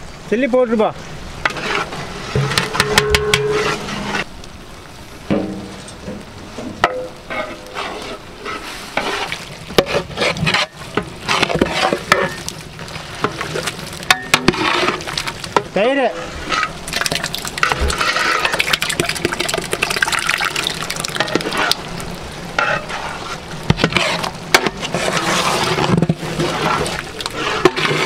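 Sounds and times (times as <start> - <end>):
steady sizzle: 0.0 - 28.0
metal ladle scraping pot: 1.4 - 4.3, 5.3 - 21.9, 22.6 - 28.0.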